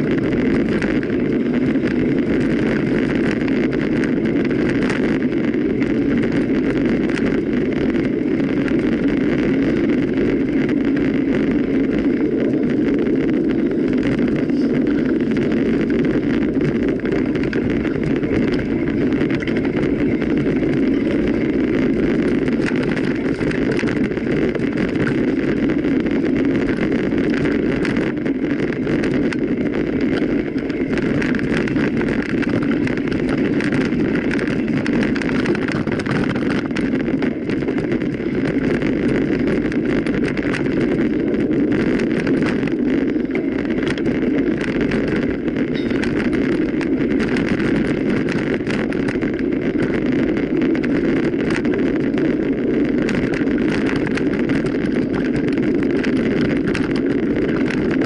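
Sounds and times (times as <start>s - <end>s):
bike tyres rolling on trail: 0.0s - 58.0s
wind rushing over microphone: 0.0s - 58.0s.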